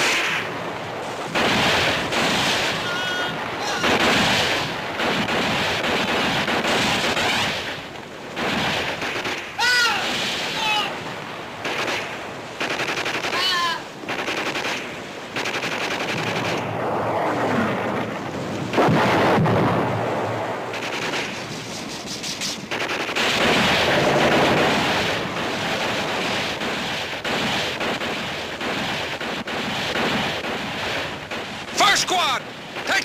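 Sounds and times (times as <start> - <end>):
heavy explosion blast: 0.0 - 11.8, 16.0 - 21.4, 22.8 - 31.9
machine-gun and rifle fire: 1.0 - 10.6, 11.6 - 16.7, 18.7 - 21.5, 22.7 - 33.0.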